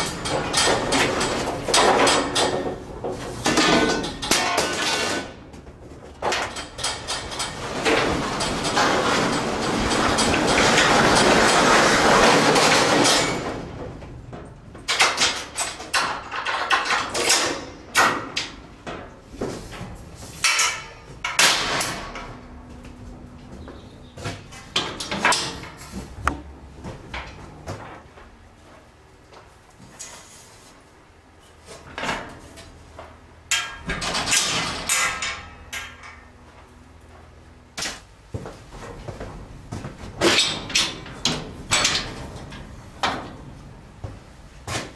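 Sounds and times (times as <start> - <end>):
sharp metallic knocks and clicks: 0.0 - 5.3, 33.5 - 36.2
metal clattering in a trailer: 0.0 - 28.2, 31.6 - 36.9, 37.8 - 44.9
steel gate latch clanking and rattling: 6.2 - 13.8, 14.8 - 19.1, 20.4 - 22.6, 24.7 - 25.9, 33.5 - 36.3, 40.2 - 43.5.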